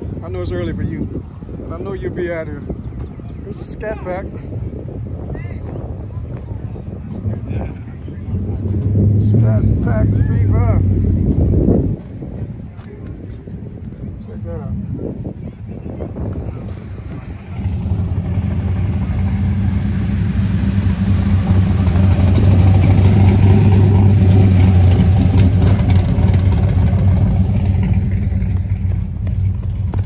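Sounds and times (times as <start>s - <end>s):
car engine running: 7.0s - 12.7s, 16.0s - 30.0s.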